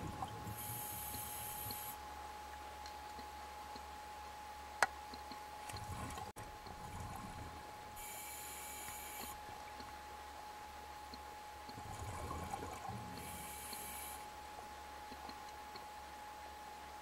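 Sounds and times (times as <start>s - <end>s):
faint steady tone: 0.0s - 17.0s
regulator inhalation hiss: 0.6s - 2.0s
exhaled bubbles gurgling: 11.7s - 13.4s.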